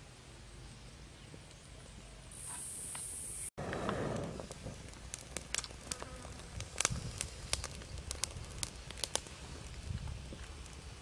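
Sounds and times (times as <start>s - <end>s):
rush of flame: 3.6s - 11.0s
twig fire crackling and popping: 3.6s - 11.0s.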